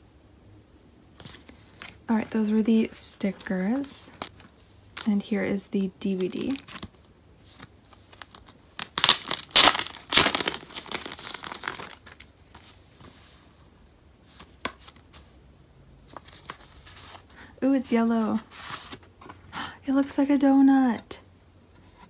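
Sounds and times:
plastic sleeve crinkling and tearing: 0:06.0 - 0:13.2.

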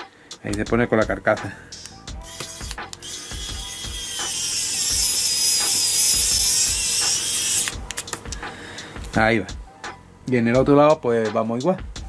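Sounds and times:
electric screwdriver motor whine: 0:02.2 - 0:07.8.

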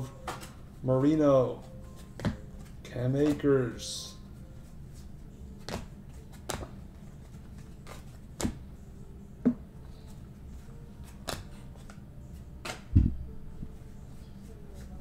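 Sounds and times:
steady low hum: 0:00.0 - 0:15.0
cards tapping on a table: 0:02.2 - 0:02.4.

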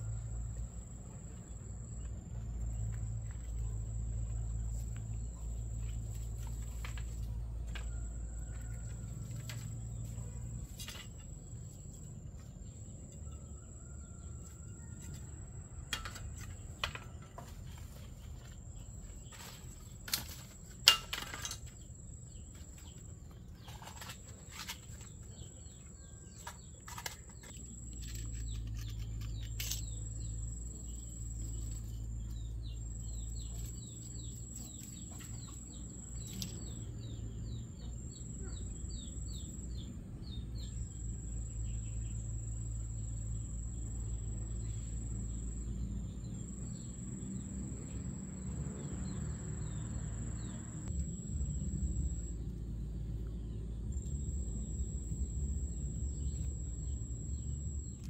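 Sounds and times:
bamboo sticks clicking and knocking: 0:05.8 - 0:11.4, 0:15.0 - 0:18.6, 0:19.3 - 0:21.9, 0:22.5 - 0:30.2.

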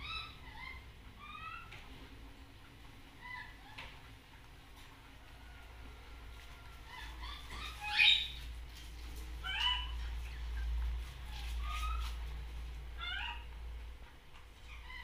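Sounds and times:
baby monkey calling: 0:00.0 - 0:01.8, 0:03.2 - 0:03.9, 0:06.8 - 0:08.5, 0:09.4 - 0:12.2, 0:13.0 - 0:13.5
steady low hum: 0:00.0 - 0:15.0.

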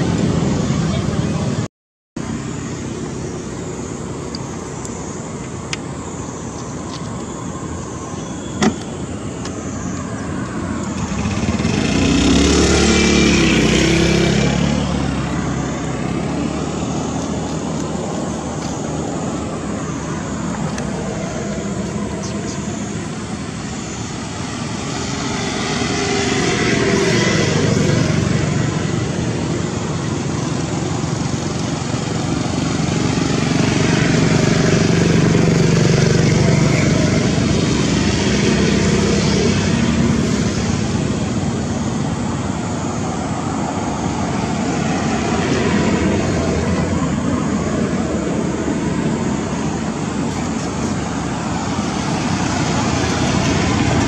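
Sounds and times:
background traffic noise: 0:00.0 - 0:54.0
vehicles passing: 0:00.0 - 0:54.0.

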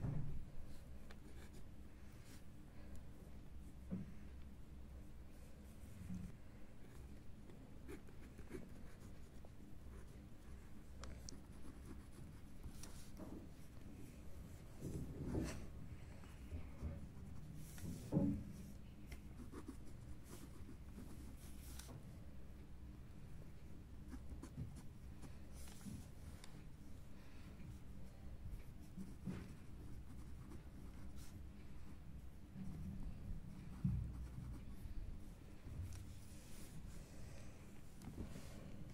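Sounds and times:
pen scratching on paper: 0:07.9 - 0:10.1, 0:28.7 - 0:31.3.

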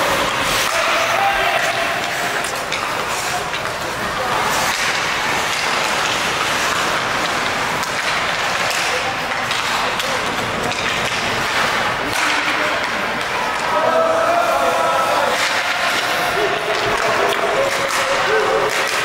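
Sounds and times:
hockey sticks and puck tapping: 0:00.0 - 0:13.8, 0:15.2 - 0:19.0
faint voices: 0:00.0 - 0:19.0
skates scraping on ice: 0:00.0 - 0:19.0.

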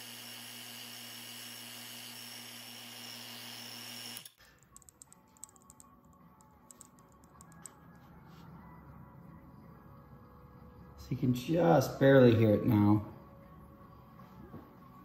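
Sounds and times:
vacuum pump humming and hissing: 0:00.0 - 0:04.4.

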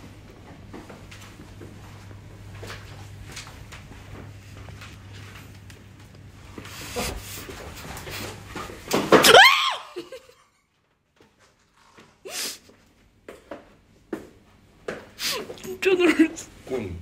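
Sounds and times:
low steady hum: 0:00.0 - 0:09.1
person crying out loudly: 0:09.2 - 0:10.3.

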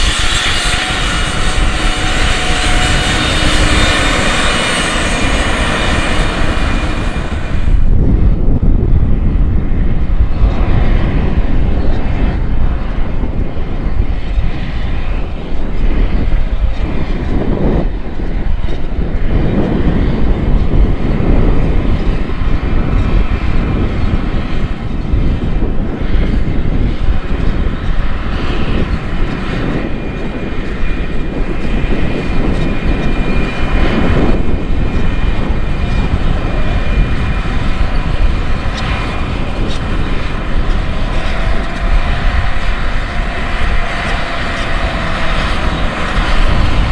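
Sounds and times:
tractor diesel engine running: 0:00.0 - 0:07.9.

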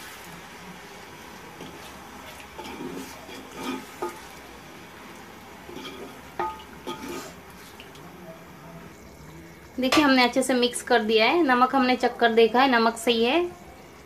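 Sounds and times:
faint sizzle: 0:00.0 - 0:14.0
wooden spoon stirring in metal pot: 0:00.8 - 0:08.1
spoon knocking against pot: 0:02.6 - 0:04.4, 0:05.7 - 0:07.3.

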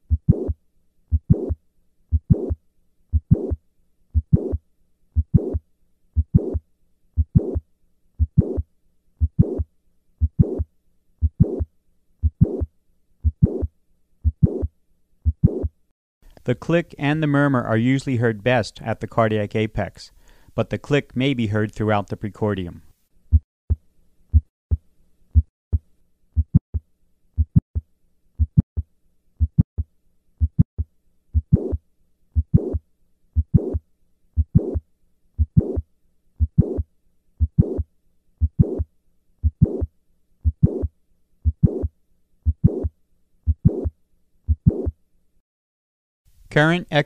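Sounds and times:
heartbeat lub-dub: 0:00.0 - 0:03.6, 0:04.2 - 0:04.6, 0:05.2 - 0:05.6, 0:06.2 - 0:06.6, 0:07.2 - 0:07.6, 0:08.2 - 0:08.6, 0:09.2 - 0:10.6, 0:11.2 - 0:15.7, 0:26.4 - 0:26.8, 0:27.4 - 0:27.6, 0:28.4 - 0:31.8, 0:32.4 - 0:32.8, 0:33.4 - 0:33.8, 0:34.4 - 0:34.8, 0:35.4 - 0:35.8, 0:36.4 - 0:36.8, 0:37.4 - 0:42.9, 0:43.5 - 0:43.9, 0:44.5 - 0:44.9
heart valve click: 0:27.4 - 0:27.6, 0:30.4 - 0:30.7, 0:39.4 - 0:40.9, 0:42.5 - 0:42.9.

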